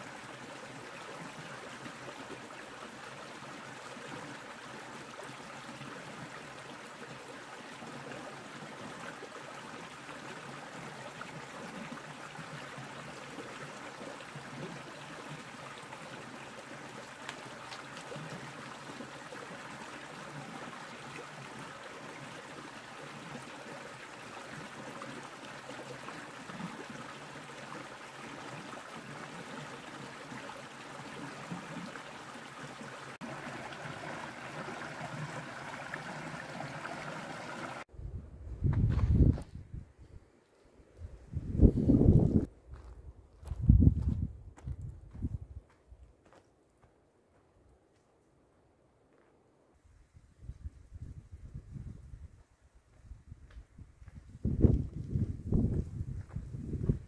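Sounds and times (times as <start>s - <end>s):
creek running over rocks: 0.0s - 37.9s.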